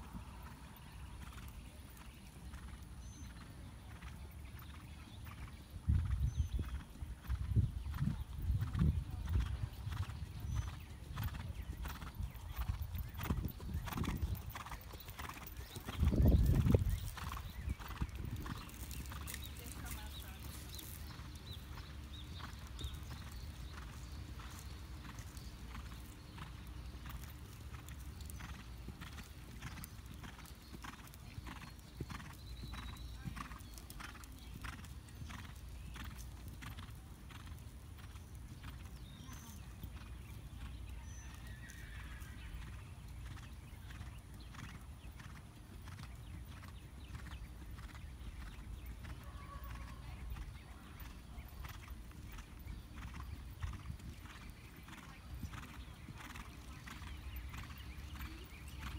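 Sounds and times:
hoofbeats on sand: 0:06.0 - 0:41.6.

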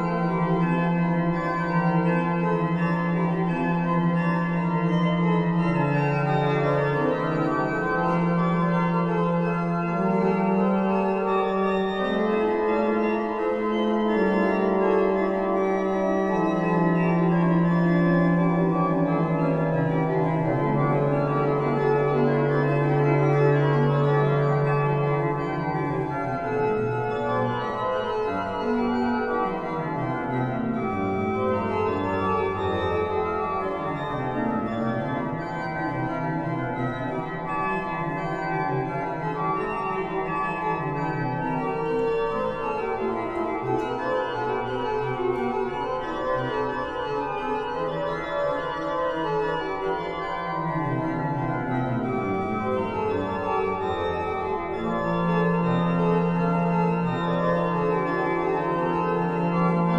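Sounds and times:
pipe organ playing slow piece: 0:00.0 - 0:59.9.

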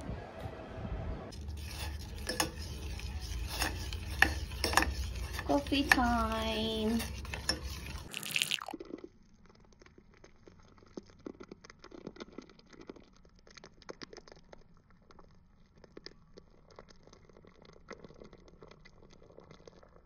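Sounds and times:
spoon whisking coffee in mug: 0:01.3 - 0:08.7
milk pouring into coffee: 0:06.8 - 0:20.0.

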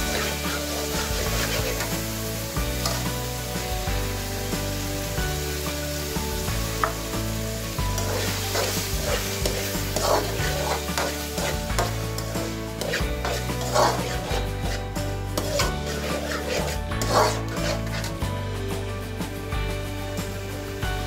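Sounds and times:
steel spoon scraping a pan: 0:00.0 - 0:05.9, 0:06.8 - 0:18.3
background music with held notes: 0:00.0 - 0:21.0
food sizzling in a frying pan: 0:00.0 - 0:21.0.

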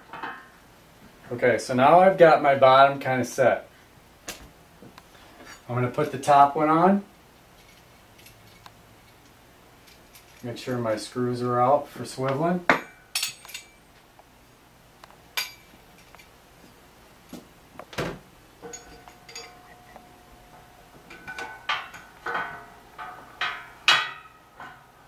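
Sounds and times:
metal pieces clinking and knocking: 0:12.7 - 0:13.8, 0:15.4 - 0:16.3, 0:18.6 - 0:24.9.

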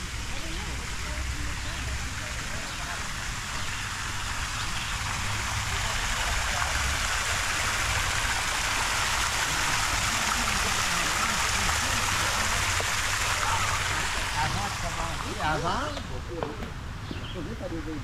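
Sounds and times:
steady rushing hiss: 0:00.0 - 0:17.0.

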